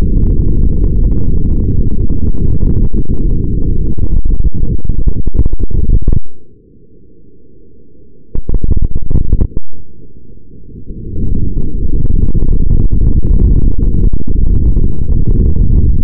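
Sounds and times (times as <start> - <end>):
wind and motor rush: 0.0 - 6.3, 8.4 - 9.6, 10.8 - 16.0.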